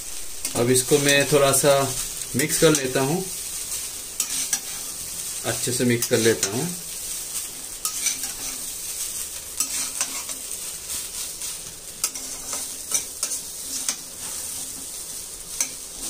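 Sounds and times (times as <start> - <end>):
rice sizzling in a pan: 0.0 - 16.0
utensil scraping a pan: 4.2 - 5.0, 7.4 - 16.0.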